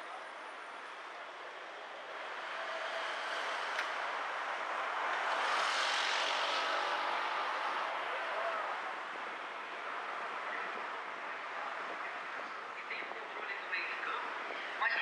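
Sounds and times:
passing vehicle rushing: 1.6s - 12.6s.

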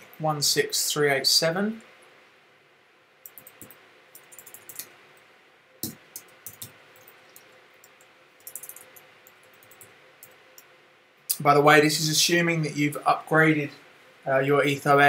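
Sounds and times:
keyboard typing clicks: 3.2s - 4.9s, 5.8s - 10.4s.

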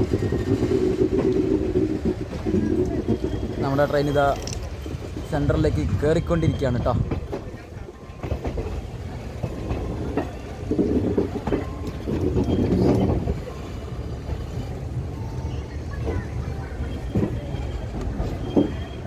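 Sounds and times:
train rumbling: 0.0s - 19.0s
wheels clacking over rail joints: 0.0s - 19.0s.

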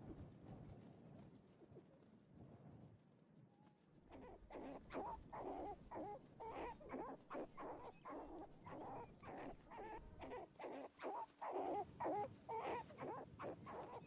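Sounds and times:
fox cubs whining and yelping: 4.1s - 14.0s.

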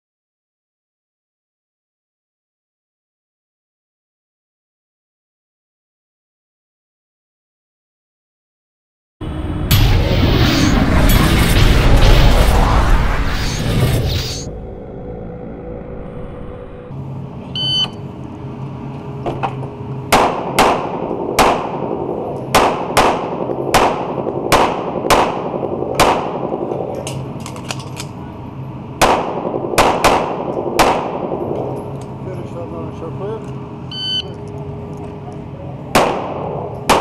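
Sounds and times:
electronic timer beep: 17.6s - 18.0s, 33.9s - 34.4s
pistol shots ringing indoors: 20.1s - 26.6s, 29.0s - 31.7s, 35.9s - 37.0s.

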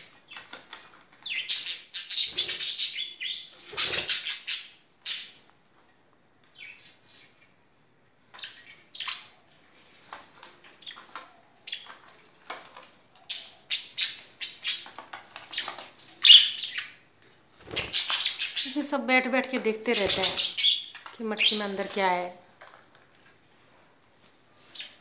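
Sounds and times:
budgerigars chirping: 1.2s - 5.4s, 13.3s - 14.9s, 15.5s - 17.0s, 17.7s - 19.0s, 19.9s - 21.8s
wings fluttering: 17.6s - 18.7s, 19.9s - 22.2s.

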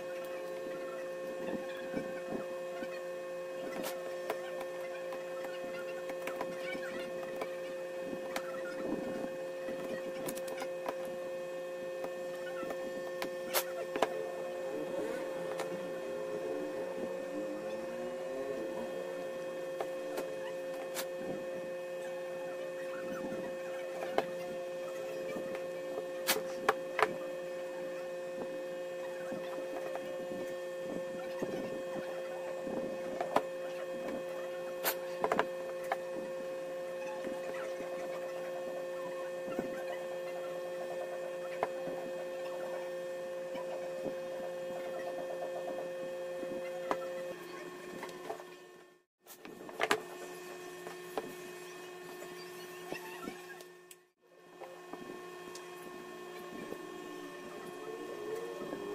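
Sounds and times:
high-pitched whine: 0.0s - 49.1s, 49.9s - 58.9s
steady electrical hum: 0.0s - 58.9s.

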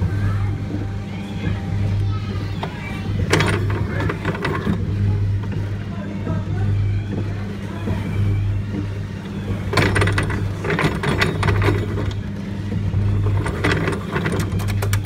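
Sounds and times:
kiddie ride motor humming: 0.0s - 15.0s
mechanism clicking and rattling: 3.2s - 4.9s, 9.6s - 12.3s, 13.2s - 15.0s.

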